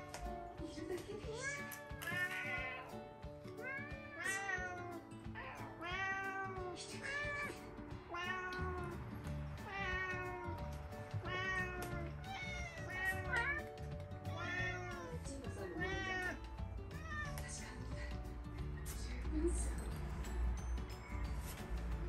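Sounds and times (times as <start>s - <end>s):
soft background music: 0.0s - 22.0s
cats meowing: 1.3s - 17.6s.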